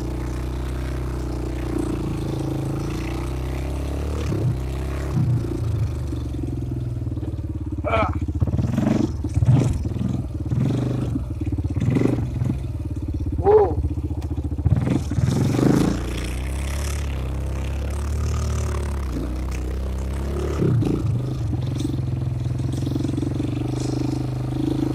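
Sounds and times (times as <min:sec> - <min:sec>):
atv engine revving: 0:00.0 - 0:24.9.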